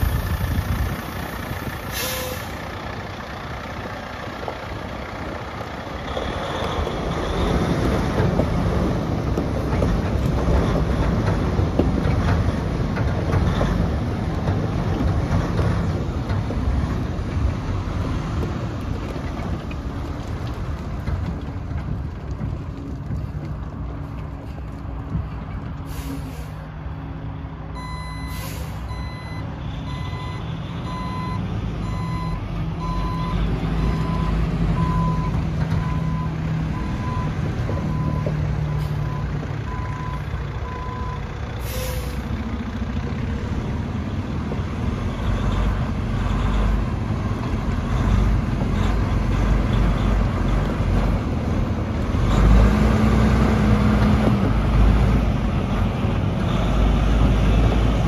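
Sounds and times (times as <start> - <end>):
diesel truck engine running: 0.0 - 58.0
air hissing: 1.9 - 2.6
reverse alarm beeping: 27.8 - 37.3.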